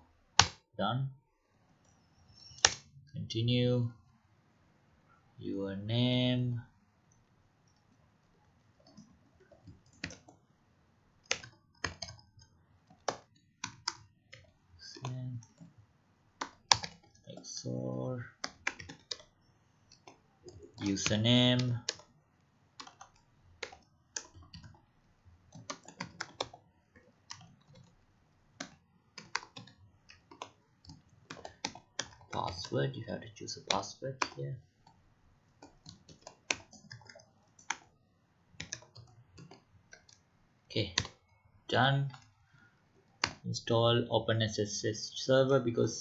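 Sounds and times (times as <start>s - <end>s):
typing on computer keyboard: 8.8s - 10.4s, 11.2s - 15.7s, 16.4s - 22.2s, 22.8s - 35.0s, 35.6s - 37.9s, 38.6s - 40.2s, 40.8s - 41.4s, 43.1s - 43.4s
keyboard key clicks: 11.3s - 12.3s, 16.4s - 17.1s.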